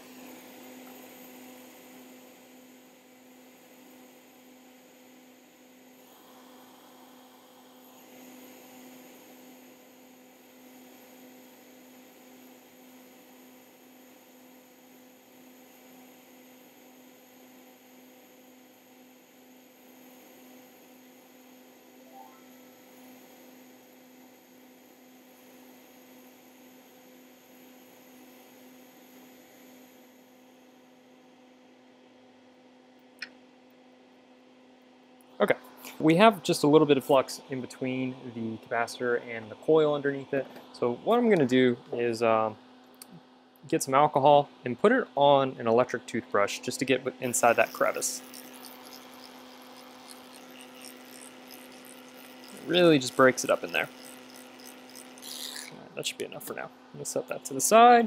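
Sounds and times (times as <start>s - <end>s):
faint electrical hum: 31.6s - 58.0s.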